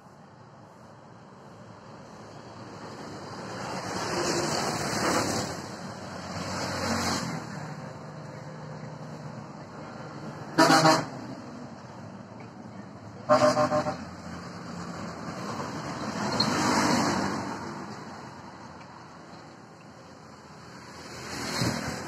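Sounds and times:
steady traffic hum: 0:00.0 - 0:22.0
vehicle passing: 0:02.6 - 0:11.7
vehicle horn honking: 0:10.6 - 0:11.2, 0:13.3 - 0:14.0.

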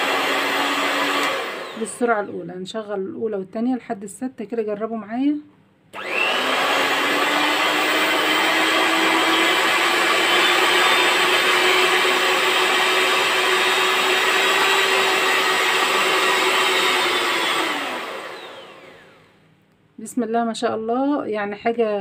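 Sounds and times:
hand mixer motor whine: 0:00.0 - 0:02.2, 0:06.0 - 0:19.4.

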